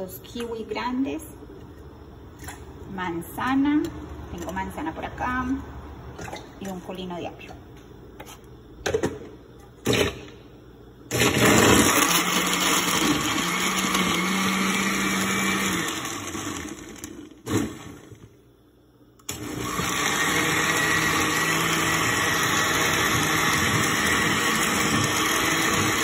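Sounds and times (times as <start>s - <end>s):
blender motor running: 11.1s - 18.1s, 19.3s - 26.0s.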